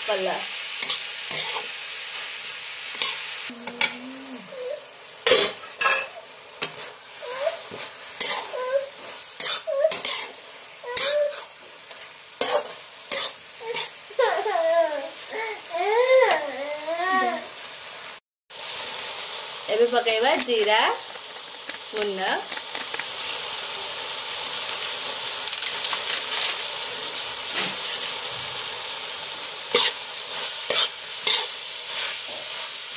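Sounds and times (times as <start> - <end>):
vegetables sizzling in oil: 0.0 - 32.9
metal spatula scraping a pan: 0.8 - 1.7, 2.9 - 14.4, 29.7 - 32.8.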